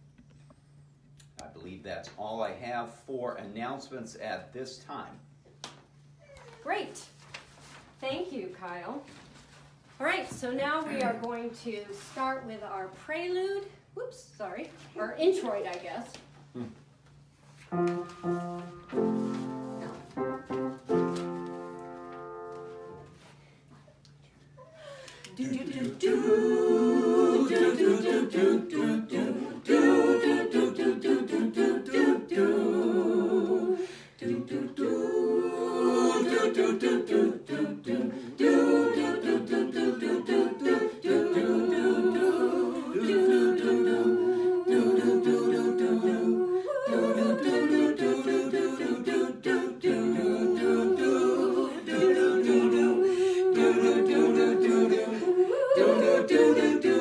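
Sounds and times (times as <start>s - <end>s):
group singing a hymn unaccompanied: 17.7s - 23.3s, 25.3s - 57.0s.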